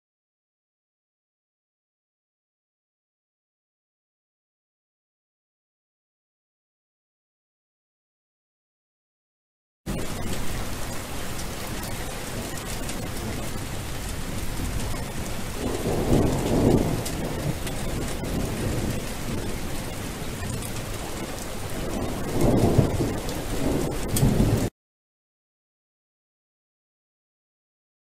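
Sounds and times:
steady rain falling: 9.9 - 24.7
thunder rolling: 9.9 - 24.7.

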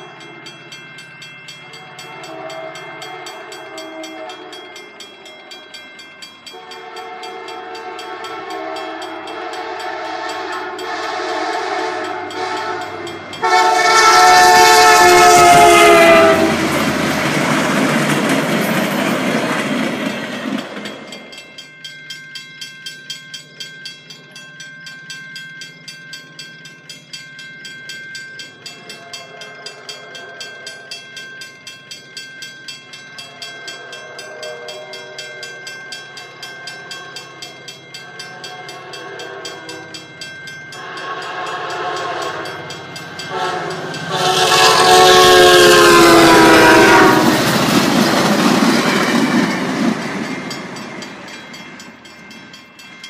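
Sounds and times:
crossing bell dinging: 0.0 - 53.0
train horn: 1.7 - 4.8, 6.5 - 16.8, 33.7 - 35.5, 38.1 - 40.0, 40.8 - 47.7
train rushing past: 6.5 - 21.5, 40.7 - 53.0.

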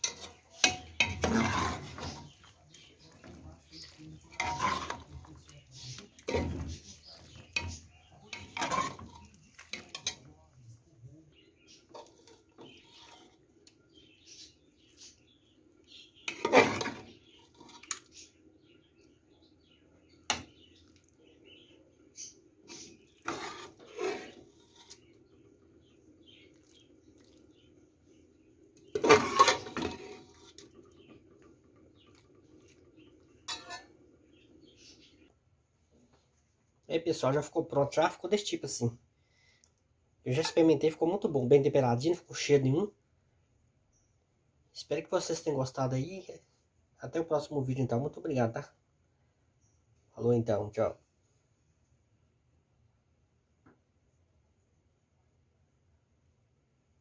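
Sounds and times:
metal spoon clinking on a pot: 0.0 - 2.4, 6.2 - 10.3, 33.5 - 33.9
metal spoon scraping a pot: 0.0 - 10.4, 11.6 - 13.4, 16.2 - 18.3, 22.2 - 25.4, 28.8 - 34.1, 40.3 - 41.0.

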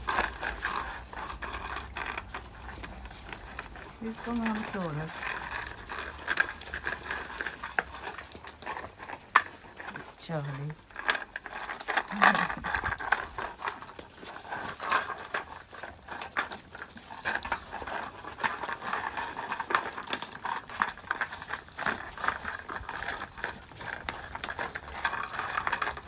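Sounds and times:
puppies chewing and lapping: 0.0 - 26.0.

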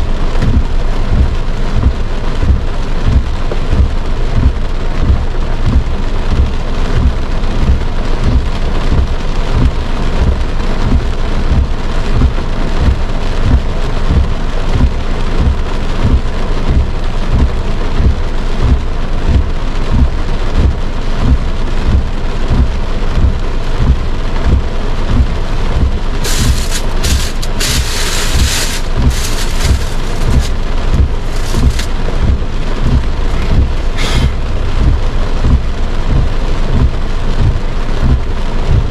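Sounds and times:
heavy rain on car roof: 0.0 - 38.9
bursts of hiss: 26.1 - 32.3, 33.0 - 34.6.

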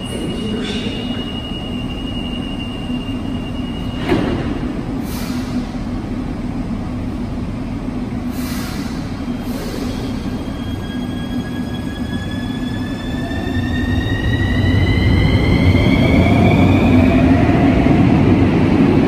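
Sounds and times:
train low hum: 0.0 - 19.0
doors shutting with a thump: 4.0 - 4.6.

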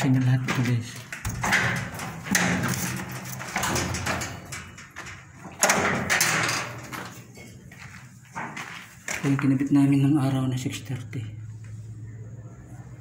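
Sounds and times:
sheet-metal cabinet door rattling: 1.2 - 7.2.

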